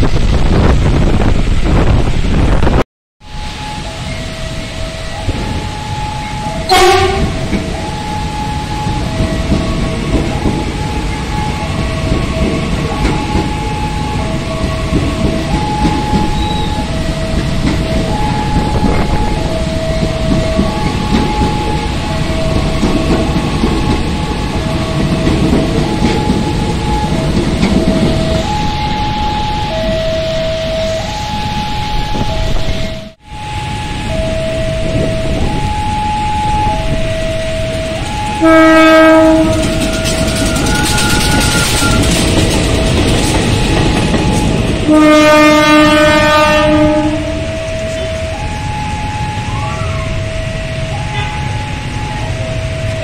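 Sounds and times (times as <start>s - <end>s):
train wheels rumbling on rails: 0.0s - 53.0s
level-crossing alarm: 3.2s - 53.0s
train horn blast: 3.4s - 8.9s, 38.1s - 42.1s, 44.3s - 48.5s, 50.7s - 52.2s.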